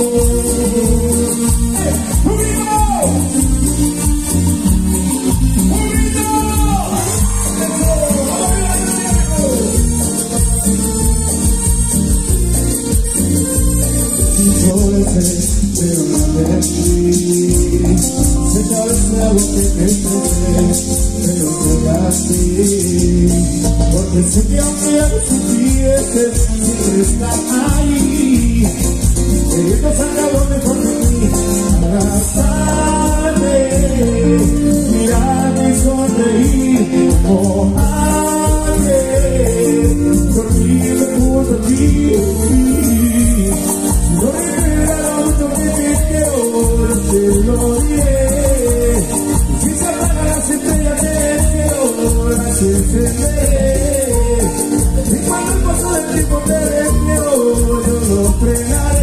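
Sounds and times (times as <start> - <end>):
band playing live: 0.0 - 59.0
latin dance music beat with bass: 0.0 - 59.0
person singing: 0.0 - 59.0
shaker percussion: 0.0 - 59.0.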